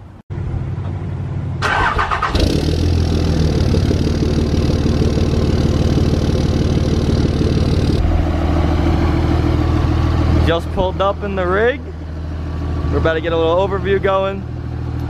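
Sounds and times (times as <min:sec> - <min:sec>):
diesel engine idling: 0:00.0 - 0:15.0
engine cranking: 0:01.6 - 0:08.2.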